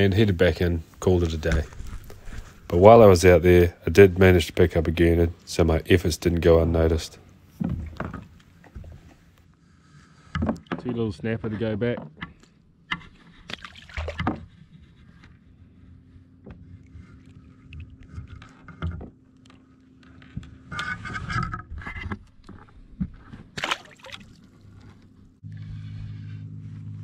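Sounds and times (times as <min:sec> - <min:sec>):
steady low hum: 0:00.0 - 0:27.0
knocks and scrapes on plastic kayak: 0:10.2 - 0:15.4
rushing splash of water: 0:23.6 - 0:24.4.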